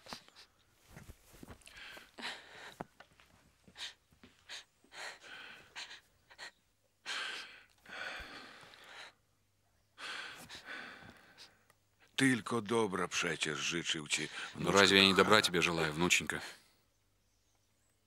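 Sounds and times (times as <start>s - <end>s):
old man gasping breaths: 1.5s - 3.0s, 3.6s - 9.2s, 10.0s - 11.7s.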